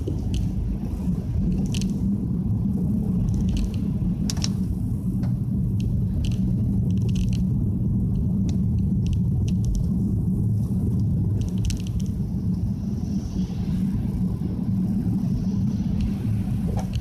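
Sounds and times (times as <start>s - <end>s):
car road and engine rumble: 0.0s - 17.0s
tyres on wet road: 13.0s - 17.0s.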